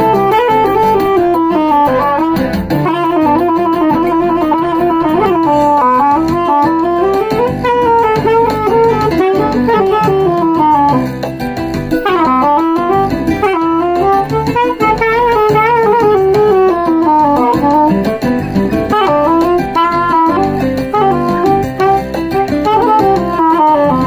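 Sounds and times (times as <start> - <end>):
backing track with guitar: 0.0 - 24.0
soprano saxophone melody: 0.0 - 24.0.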